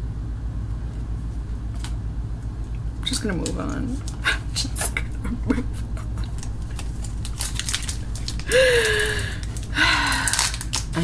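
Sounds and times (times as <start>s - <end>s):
trading cards flipping: 1.7s - 2.0s, 6.2s - 11.0s.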